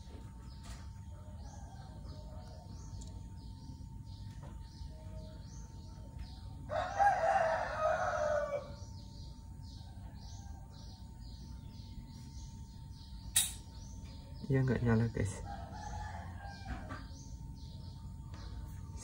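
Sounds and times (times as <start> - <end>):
faint high chirping: 0.0 - 19.0
rooster crowing: 6.7 - 9.0, 15.4 - 17.2.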